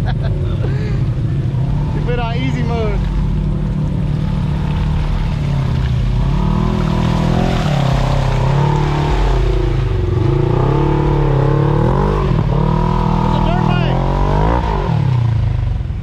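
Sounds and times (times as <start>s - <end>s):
off-road vehicle engine revving: 0.0s - 16.0s.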